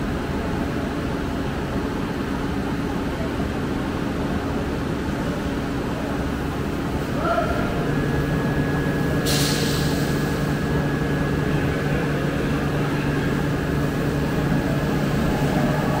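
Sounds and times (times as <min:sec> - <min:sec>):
heavy machinery humming: 0:06.6 - 0:16.0
hiss: 0:09.2 - 0:10.5.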